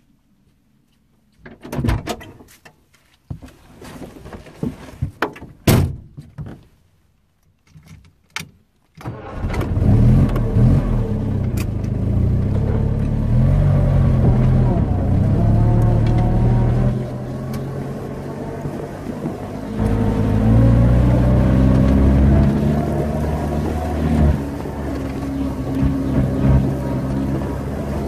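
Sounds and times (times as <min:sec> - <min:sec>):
car engine starting and idling: 0:09.0 - 0:28.0.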